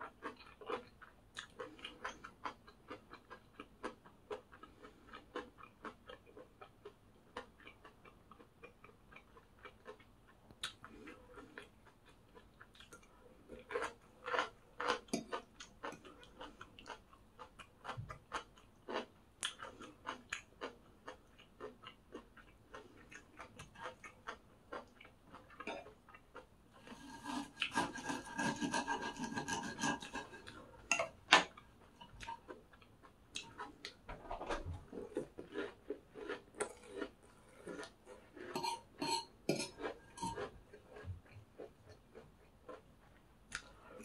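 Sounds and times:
crisp crunching and chewing: 0:00.0 - 0:38.8.

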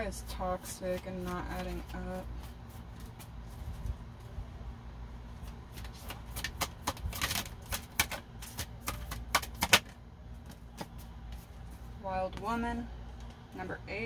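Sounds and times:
cards shuffling and clicking: 0:05.4 - 0:11.5
card rustle: 0:05.4 - 0:11.8.

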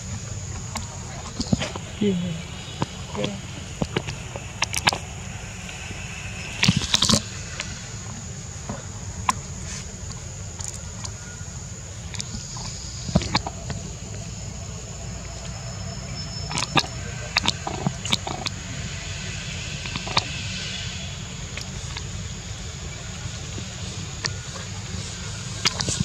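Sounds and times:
low rumble: 0:00.0 - 0:26.0.

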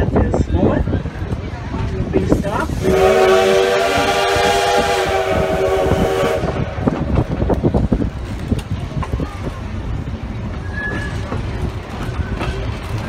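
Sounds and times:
train rumbling and clattering: 0:00.0 - 0:13.0
steam locomotive whistle: 0:02.8 - 0:06.8.

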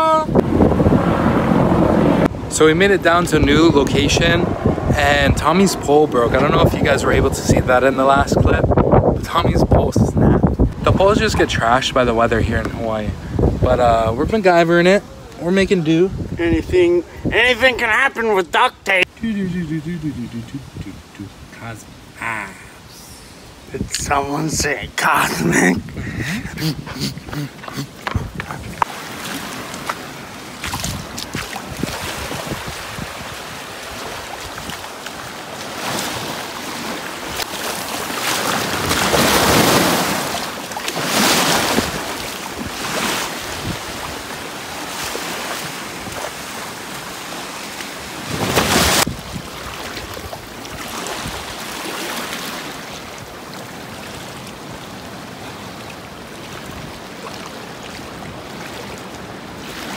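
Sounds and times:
surf washing over rocky shore: 0:00.0 - 0:13.8, 0:21.5 - 0:59.9
wind buffeting microphone: 0:00.0 - 0:18.0, 0:23.6 - 0:35.4, 0:41.2 - 0:44.9, 0:48.1 - 0:51.6.

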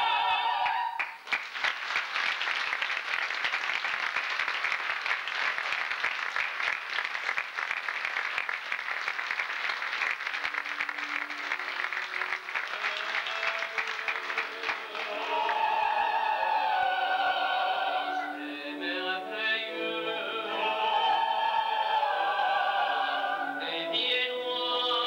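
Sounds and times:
soloists and chorus singing chord: 0:00.0 - 0:01.0, 0:12.7 - 0:25.0
audience applause: 0:00.6 - 0:16.5.

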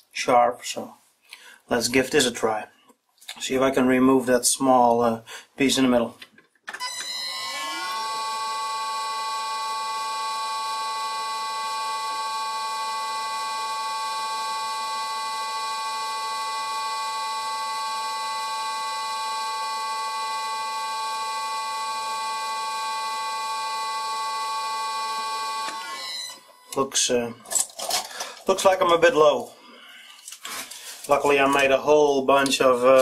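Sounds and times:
lathe whining: 0:06.9 - 0:26.7.

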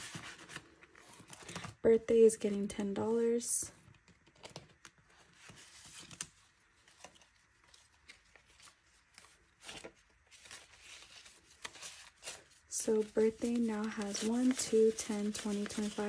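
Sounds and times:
banknotes rustling: 0:04.5 - 0:16.0.

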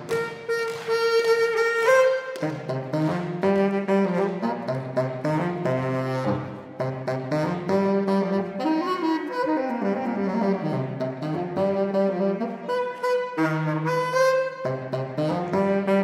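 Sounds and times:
saxophone ensemble playing: 0:00.0 - 0:16.0.

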